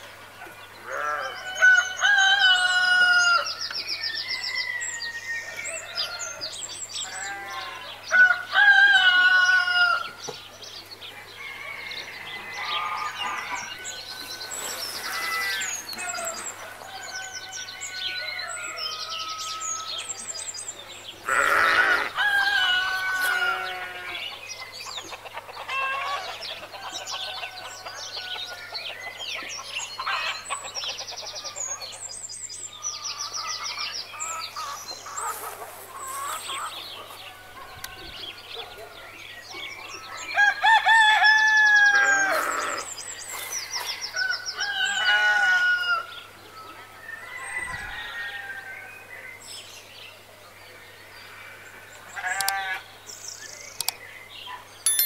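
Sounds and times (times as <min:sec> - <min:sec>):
small birds chirping and trilling: 0:00.0 - 0:55.0
rooster crowing: 0:00.9 - 0:03.5, 0:21.6 - 0:24.2, 0:44.2 - 0:46.1.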